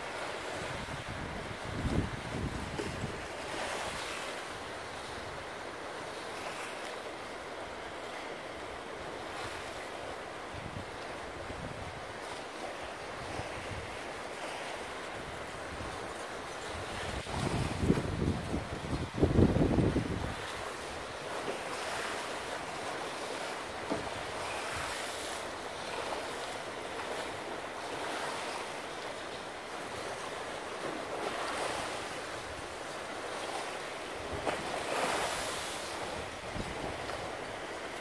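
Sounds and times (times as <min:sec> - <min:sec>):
wind rumble on microphone: 0:00.0 - 0:04.3, 0:10.5 - 0:12.4, 0:13.1 - 0:22.2, 0:34.2 - 0:38.0
waves breaking on shore: 0:00.0 - 0:38.0.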